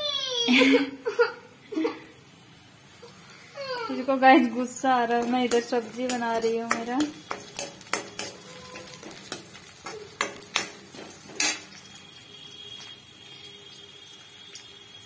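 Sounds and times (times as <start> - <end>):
onions sizzling in oil: 1.6 - 15.0
metal ladle scraping pan: 5.1 - 11.9.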